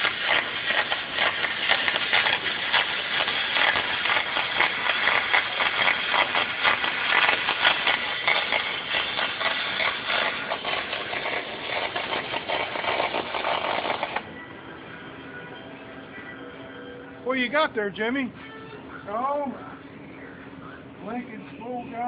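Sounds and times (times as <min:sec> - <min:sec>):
welding arc crackling: 0:00.0 - 0:14.3.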